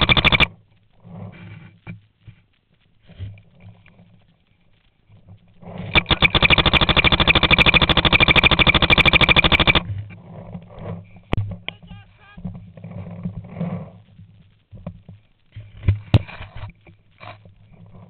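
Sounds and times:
paintball marker rapid firing: 0.0 - 0.5, 5.9 - 9.9
sharp cracks: 0.0 - 0.6, 5.8 - 9.9.

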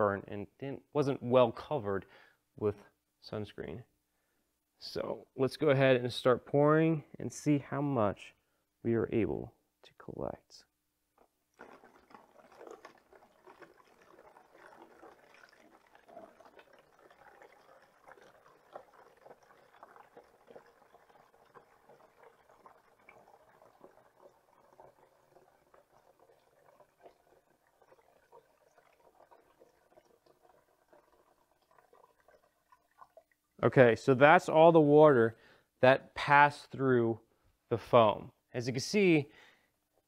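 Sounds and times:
water trickling into a plastic jug: 11.2 - 34.1.

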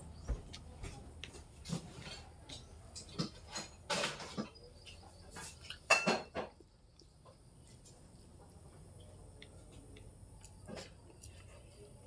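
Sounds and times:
utensil clinking on a plate: 1.7 - 6.6.

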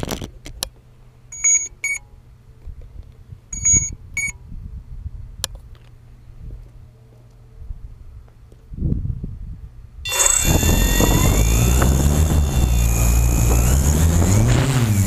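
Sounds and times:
loud high electronic beeps: 10.1 - 14.6
low steady hum: 10.1 - 15.0.

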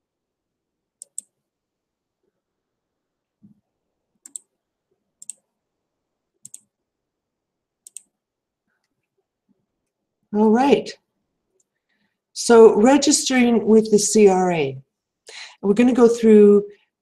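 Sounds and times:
computer mouse clicks: 1.0 - 1.4, 4.2 - 4.5, 5.2 - 5.5, 6.4 - 6.7, 7.8 - 8.2.

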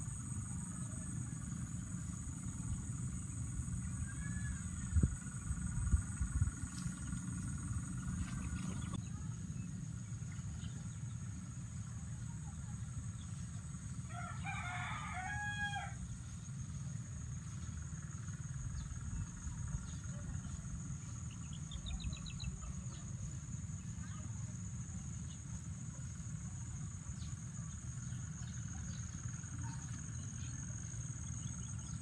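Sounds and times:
wind on microphone: 4.4 - 7.1
rooster crowing: 14.1 - 16.0.

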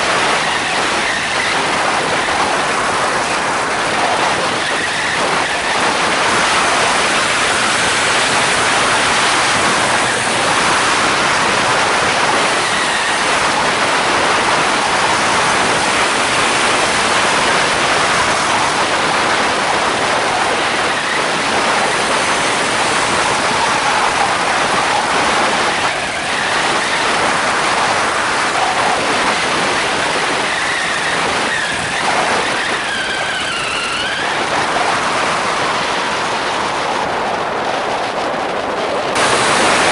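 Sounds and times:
wind on microphone: 0.0 - 39.9.

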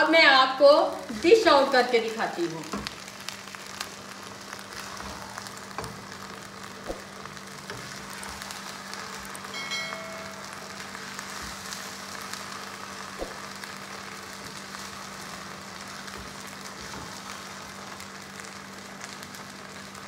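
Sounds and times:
food sizzling in a pan: 0.0 - 20.0
brief chime: 9.6 - 10.4.

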